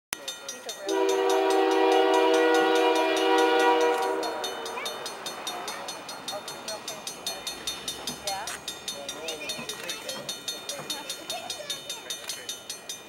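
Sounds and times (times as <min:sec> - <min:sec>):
crossing warning bell dinging: 0:00.2 - 0:13.0
locomotive air horn: 0:00.9 - 0:04.8.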